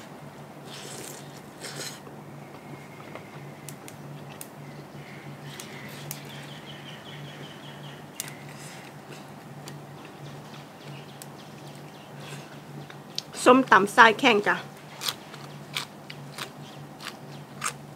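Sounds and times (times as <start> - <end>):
chewing and crunching: 0.6 - 2.7, 14.8 - 17.9.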